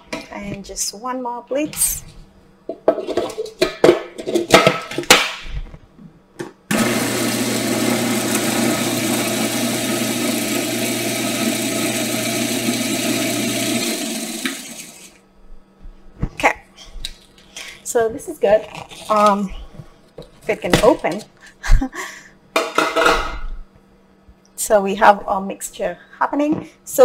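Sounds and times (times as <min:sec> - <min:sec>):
food processor motor running: 0:06.7 - 0:15.2.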